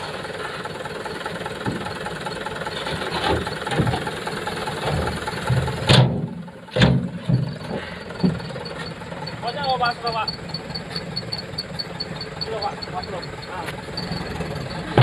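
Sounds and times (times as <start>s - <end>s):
diesel engine running: 0.0s - 15.0s
tailgate banging shut: 4.9s - 7.5s.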